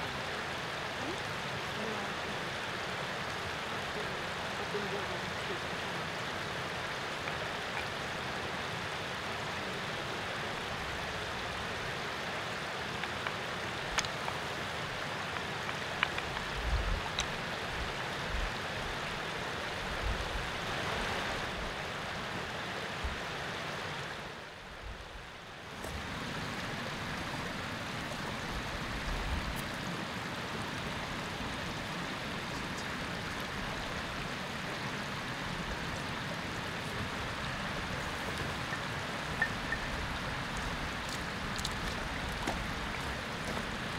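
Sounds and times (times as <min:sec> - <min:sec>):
faint ticks: 0:13.0 - 0:14.4, 0:15.3 - 0:17.4.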